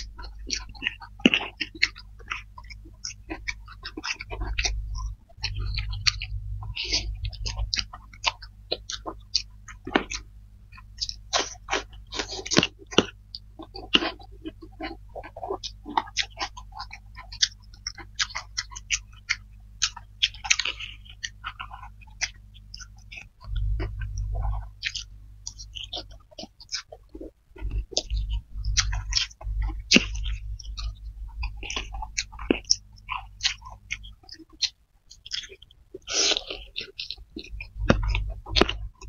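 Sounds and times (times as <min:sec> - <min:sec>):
wet chewing and lip smacking: 0:00.0 - 0:39.0
low rumble: 0:03.2 - 0:12.2, 0:23.1 - 0:26.1, 0:27.6 - 0:33.0
noodle slurping: 0:35.3 - 0:39.0.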